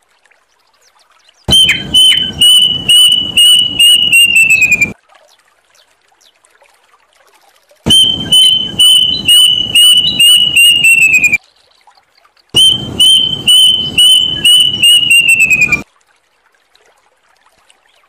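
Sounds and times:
cuckoo whistled notes: 0:01.5 - 0:05.0, 0:07.9 - 0:11.4, 0:12.6 - 0:15.8.

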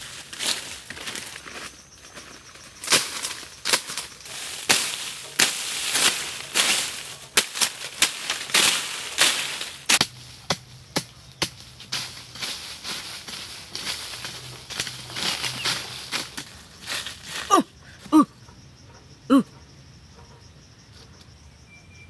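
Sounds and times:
leaves rustling: 0:00.0 - 0:18.1
machete chopping brush: 0:02.8 - 0:17.4.

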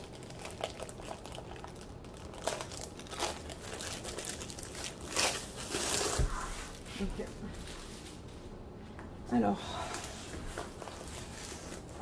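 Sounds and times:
plastic sleeve crinkling: 0:00.0 - 0:08.3.

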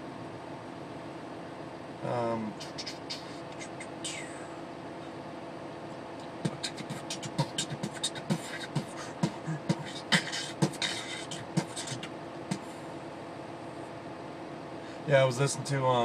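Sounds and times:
man beatboxing: 0:02.0 - 0:04.6, 0:06.2 - 0:12.7.

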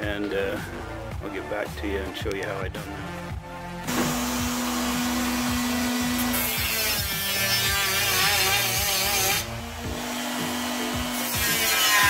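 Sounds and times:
rotary tool cutting metal: 0:05.1 - 0:09.5, 0:10.2 - 0:12.0.

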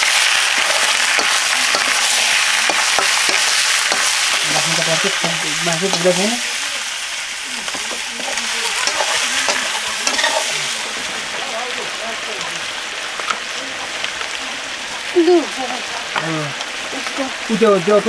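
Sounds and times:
meat sizzling in hot oil: 0:00.0 - 0:18.0
metal spatula scraping wok: 0:00.5 - 0:06.7, 0:07.6 - 0:11.1.

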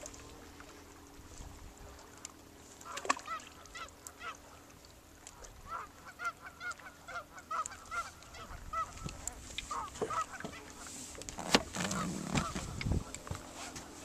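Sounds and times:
geese honking: 0:05.6 - 0:09.1, 0:09.7 - 0:10.9.

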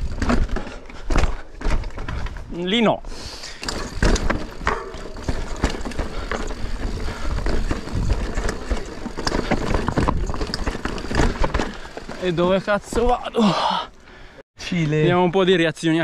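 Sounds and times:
bike tyres clattering over stones: 0:00.0 - 0:02.7, 0:03.4 - 0:13.7
rattles: 0:03.4 - 0:13.2
wind noise on microphone: 0:05.2 - 0:11.3.

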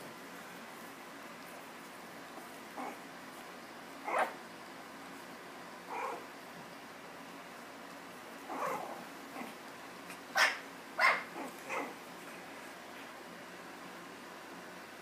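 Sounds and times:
puppies yipping: 0:04.0 - 0:04.4, 0:10.4 - 0:12.0.

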